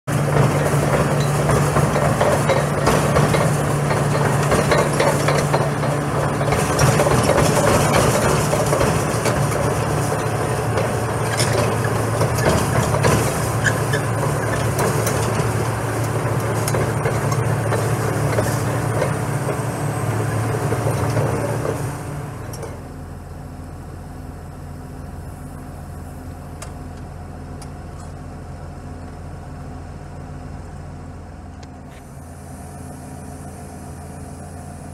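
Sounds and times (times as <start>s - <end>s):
diesel engine running: 0.0s - 34.9s
steel tracks clattering: 0.1s - 22.8s.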